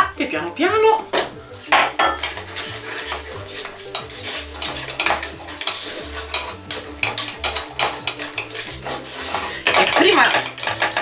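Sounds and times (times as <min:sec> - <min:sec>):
whisk clicking and scraping a pan: 0:01.2 - 0:11.0.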